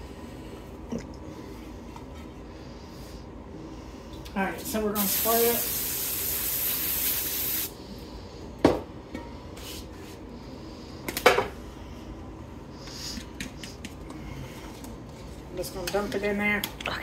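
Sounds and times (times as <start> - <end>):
aerosol spray hissing: 5.0 - 7.8.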